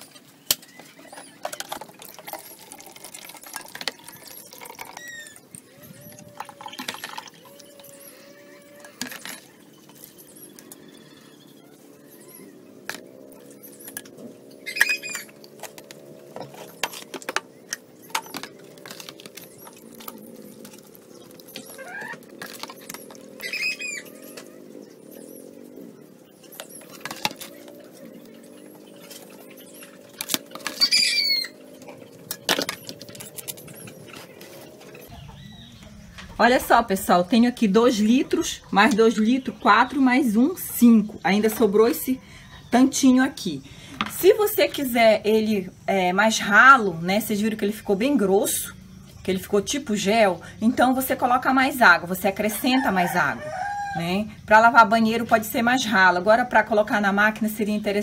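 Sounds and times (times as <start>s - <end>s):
liquid soap pouring through funnel: 1.6s - 5.4s
bird calling: 3.9s - 45.7s.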